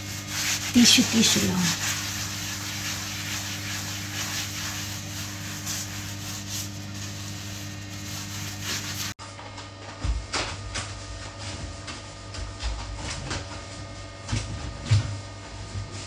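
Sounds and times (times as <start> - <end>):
soft rubbing and handling noises: 0.0 - 9.2
steady low hum: 0.0 - 9.2.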